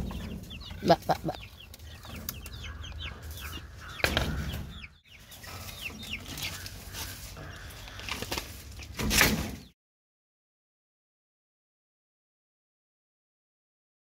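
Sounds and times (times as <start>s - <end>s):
chicks peeping: 0.0s - 9.7s.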